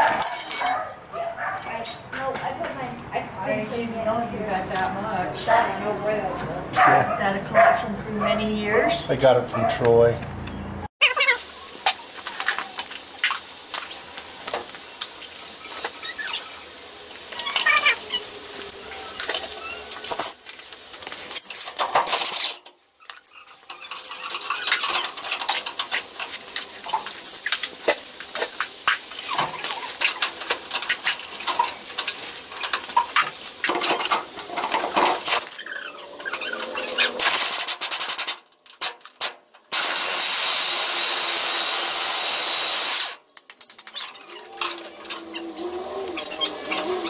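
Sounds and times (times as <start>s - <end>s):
tools clicking and knocking: 20.1s - 26.3s
pneumatic air ratchet running: 36.6s - 38.4s, 39.7s - 43.2s.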